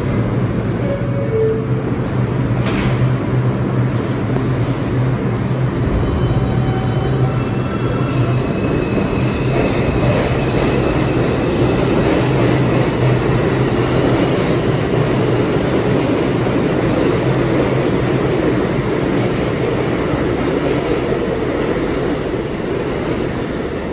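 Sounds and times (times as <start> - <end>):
subway train wheels rumbling: 0.0 - 23.9.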